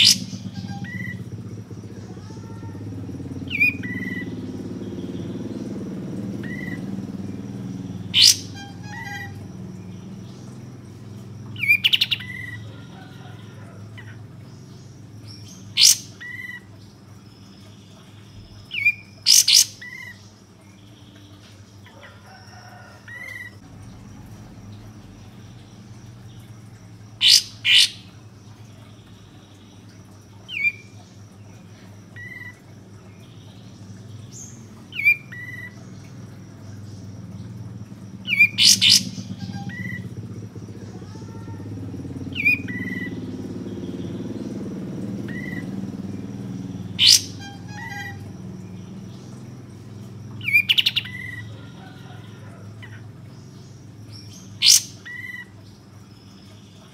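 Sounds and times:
songbird sharp call notes: 0.0s - 1.2s, 7.6s - 10.0s, 15.3s - 16.7s, 27.2s - 28.2s, 38.2s - 40.1s, 45.2s - 49.2s, 54.1s - 55.6s.

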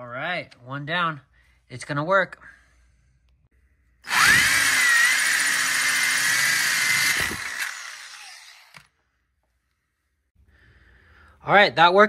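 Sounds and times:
drill bit grinding ceramic: 4.0s - 8.9s
electric drill whining: 4.0s - 9.0s.

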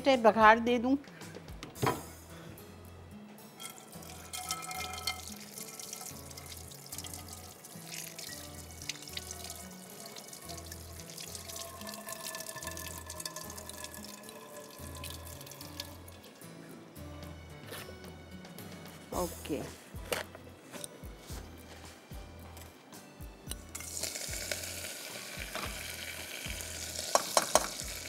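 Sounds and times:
tap water running into sink: 3.6s - 16.2s, 25.4s - 28.0s.

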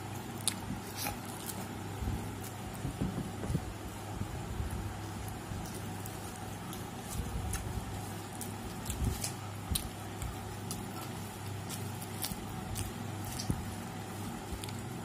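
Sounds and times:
steady low hum: 0.0s - 15.0s
chewing and lip-smacking: 0.2s - 1.7s, 5.2s - 13.8s.

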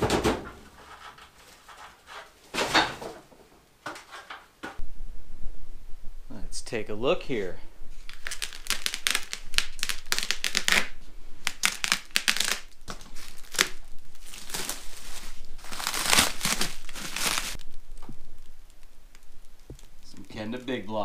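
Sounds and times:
plastic wrap crinkling and tearing: 8.0s - 20.8s.

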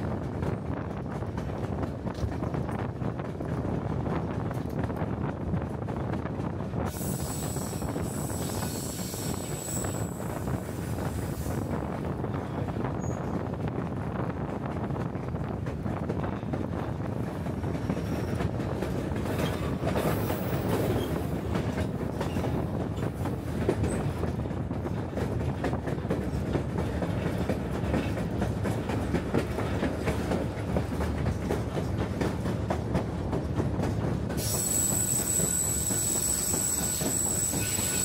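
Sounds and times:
train rumbling along track: 0.0s - 38.0s
high wheel squeal: 6.9s - 10.6s, 34.4s - 38.0s.

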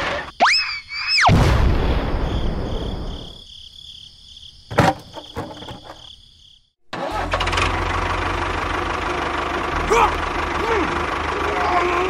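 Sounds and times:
motor running with low rumble: 7.8s - 12.0s.

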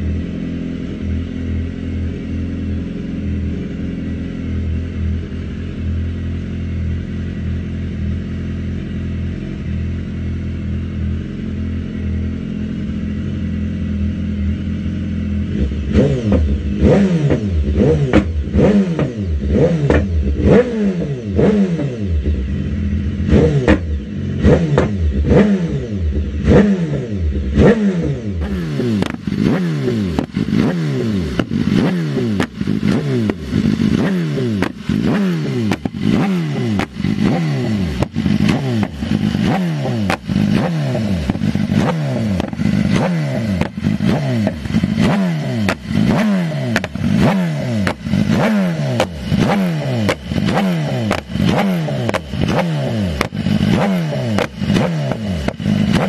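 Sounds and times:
motorcycle engine idling: 0.0s - 56.0s
motorcycle engines revving: 0.0s - 56.0s
exhaust pops: 23.6s - 23.9s, 29.0s - 29.4s, 34.6s - 40.6s, 41.2s - 48.4s, 49.0s - 56.0s.

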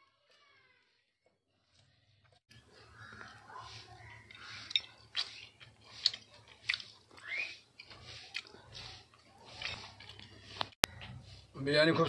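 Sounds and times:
person chewing with mouth smacks: 4.2s - 11.1s.

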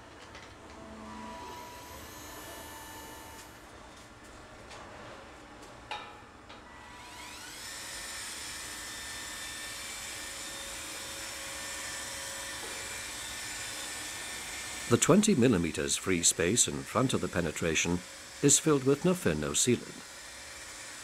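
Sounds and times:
sealant gun motor whirring: 6.9s - 18.5s.

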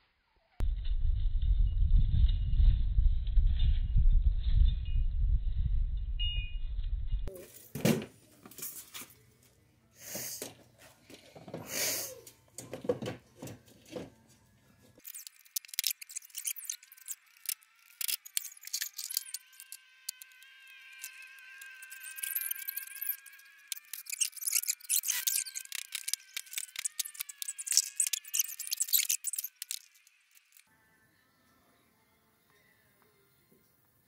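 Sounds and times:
low rumble: 0.6s - 7.3s
thin high steady buzz: 15.0s - 34.0s.

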